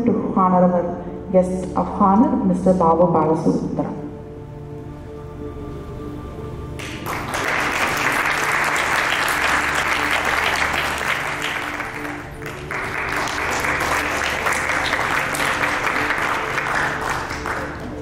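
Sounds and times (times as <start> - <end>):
background music: 0.0 - 18.0
audience applauding: 6.8 - 18.0.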